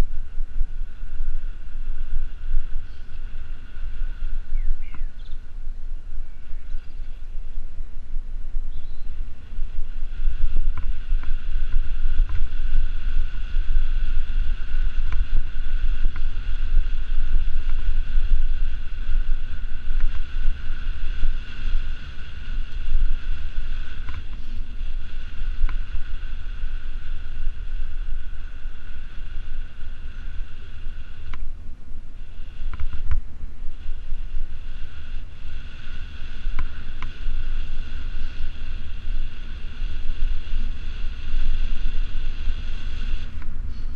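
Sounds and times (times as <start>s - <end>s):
steady high whine: 0.0s - 43.9s
wind buffeting microphone: 0.0s - 43.9s
faint bike clicks: 2.8s - 5.5s, 8.6s - 31.5s.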